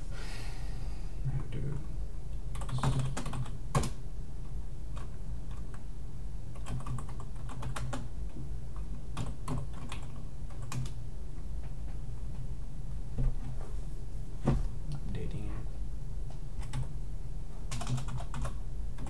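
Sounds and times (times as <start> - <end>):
keyboard typing: 2.5 - 4.0, 6.5 - 8.1, 8.8 - 11.0, 16.6 - 16.9, 17.7 - 19.0.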